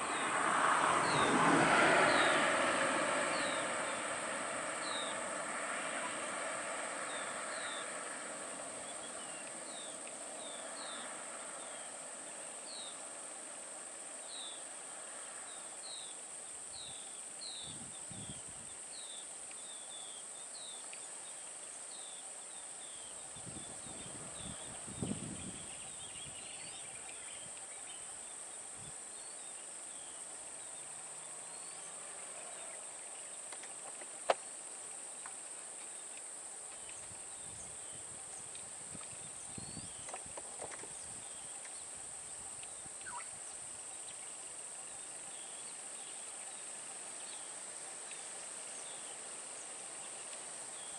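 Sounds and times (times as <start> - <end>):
bird chirping: 39.2 - 49.2.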